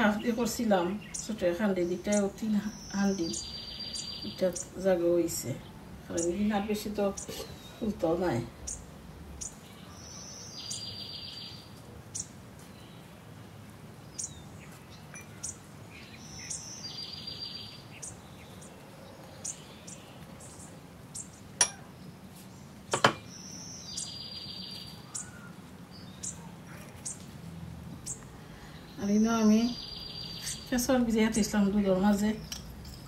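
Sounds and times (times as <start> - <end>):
birds chirping and calling: 0.0 - 33.0
sharp knocks: 22.9 - 23.3.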